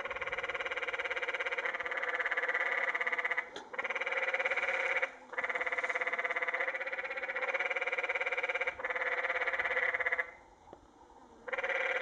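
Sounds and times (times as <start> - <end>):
tree frogs trilling: 0.0 - 10.5, 11.4 - 12.0.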